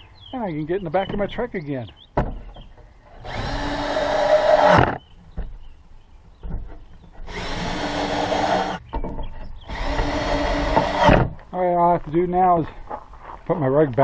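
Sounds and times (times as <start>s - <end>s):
cordless drill driving screws: 3.1s - 5.0s, 7.2s - 8.8s, 9.6s - 11.4s.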